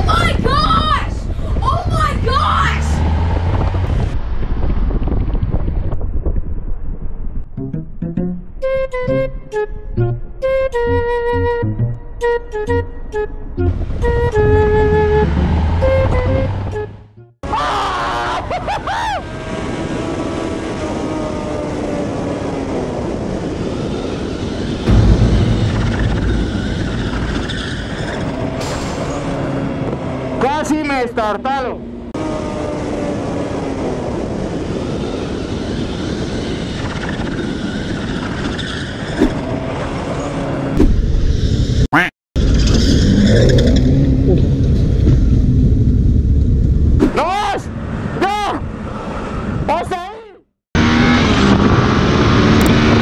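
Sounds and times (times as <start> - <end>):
wind noise: 0.0 - 7.8, 18.5 - 30.7, 32.3 - 41.8
motorcycle engine revving: 13.8 - 17.1, 42.4 - 46.1, 50.8 - 53.0.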